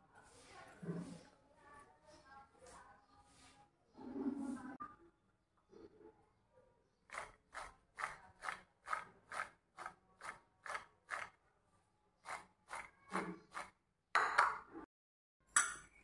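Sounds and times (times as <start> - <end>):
glass bowl scraping on hard surface: 0.7 - 1.3, 3.9 - 4.8, 12.3 - 14.3.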